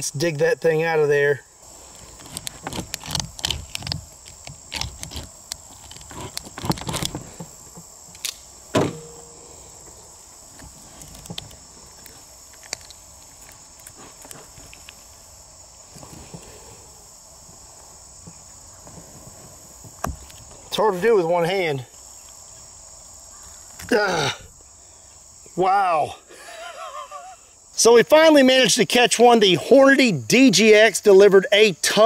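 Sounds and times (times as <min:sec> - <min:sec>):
insects droning: 0:00.0 - 0:32.0.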